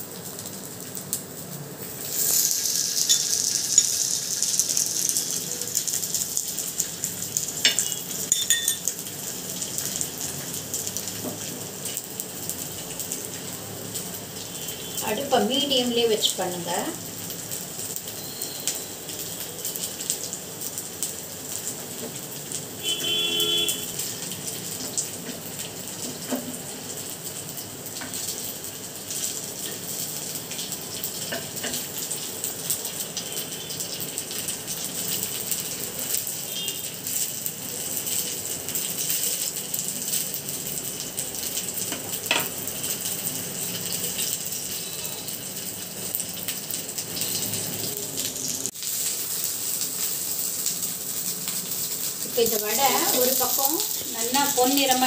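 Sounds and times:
fritters sizzling in hot oil: 0:00.0 - 0:55.0
brief tone: 0:18.2 - 0:19.0, 0:44.8 - 0:45.3.

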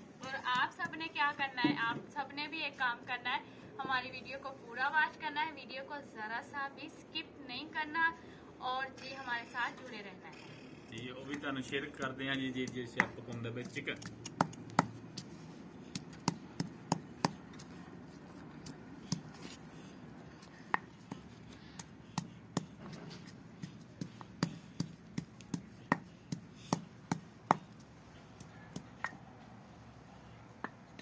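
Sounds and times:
pestle pounding in stone mortar: 0:11.0 - 0:15.3, 0:15.9 - 0:17.5, 0:20.7 - 0:27.8.

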